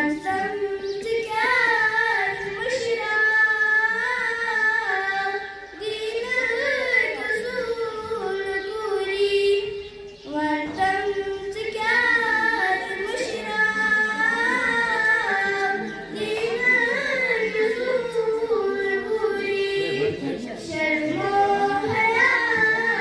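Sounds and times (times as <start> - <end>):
girl singing into a microphone: 0.0 - 23.0.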